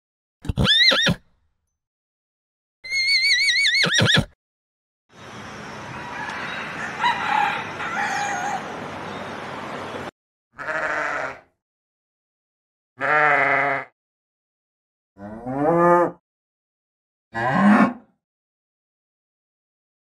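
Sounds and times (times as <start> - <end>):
sheep bleating: 10.6 - 11.5, 13.0 - 13.9.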